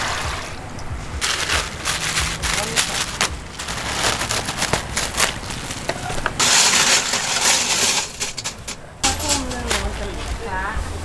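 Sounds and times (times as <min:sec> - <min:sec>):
plastic bag crinkling: 0:01.2 - 0:10.4
metal hooks jangling in a pot: 0:06.4 - 0:10.0.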